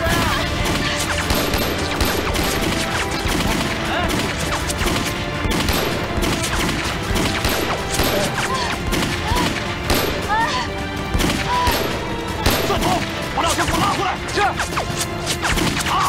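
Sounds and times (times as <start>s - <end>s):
rifle gunfire: 1.0s - 10.4s, 11.1s - 13.0s.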